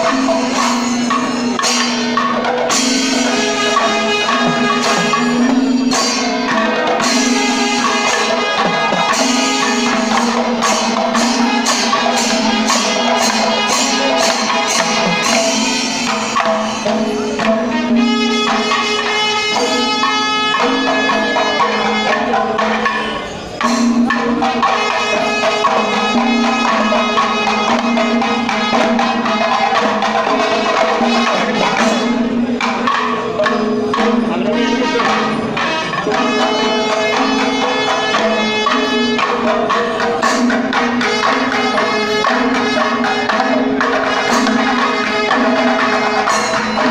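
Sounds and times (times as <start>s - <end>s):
steady held tones: 0.0s - 42.7s
cymbals: 0.0s - 46.9s
horns holding notes: 0.0s - 46.9s
temple drums: 0.0s - 46.9s.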